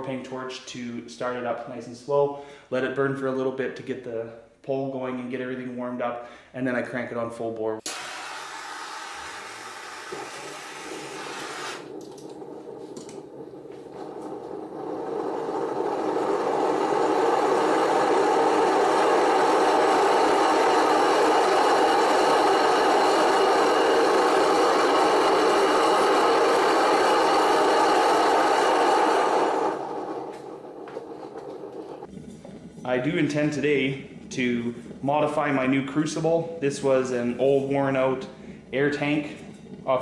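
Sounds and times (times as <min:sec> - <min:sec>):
propane torch hissing: 0:07.9 - 0:32.1
burner flame roaring: 0:07.9 - 0:36.2.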